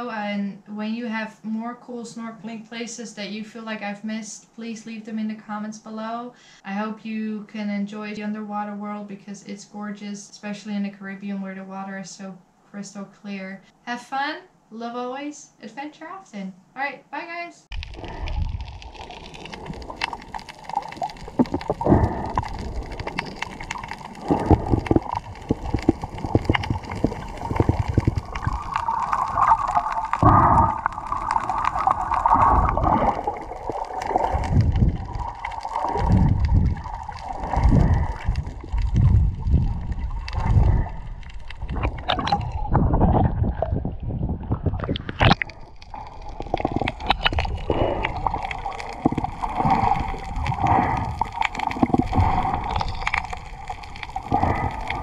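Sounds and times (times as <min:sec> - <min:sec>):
underwater sloshing and gurgling: 0:17.7 - 0:55.0.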